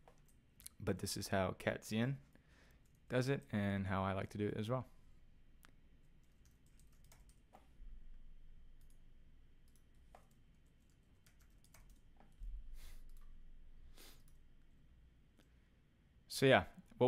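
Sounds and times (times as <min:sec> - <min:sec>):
keyboard typing: 0:06.1 - 0:07.7, 0:08.8 - 0:09.0, 0:09.6 - 0:13.4.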